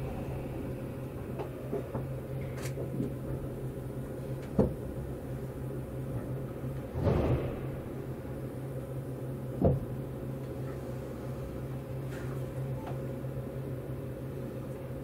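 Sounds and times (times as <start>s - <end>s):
train clunks and knocks: 0.0s - 5.0s, 6.1s - 8.4s, 9.6s - 10.0s
train interior hum: 0.0s - 15.0s.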